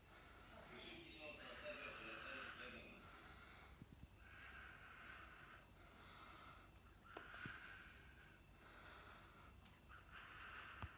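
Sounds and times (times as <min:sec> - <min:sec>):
slow hissy breathing: 0:00.0 - 0:10.9.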